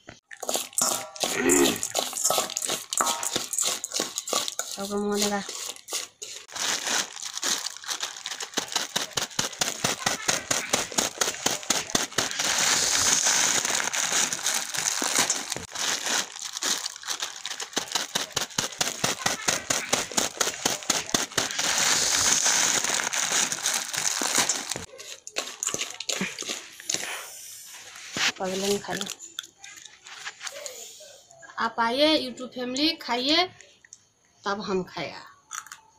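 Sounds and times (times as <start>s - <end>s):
plastic packet crinkling: 0.3s - 27.1s
dry grains pouring into bowl: 0.4s - 27.0s.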